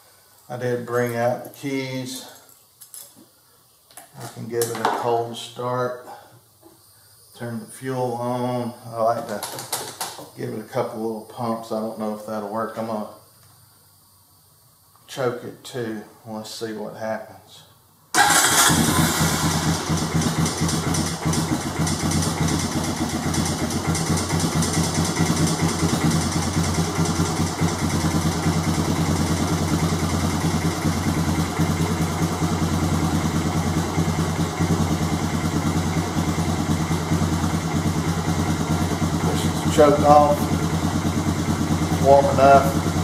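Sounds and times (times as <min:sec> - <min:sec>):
atv engine idling: 0:18.2 - 0:43.0.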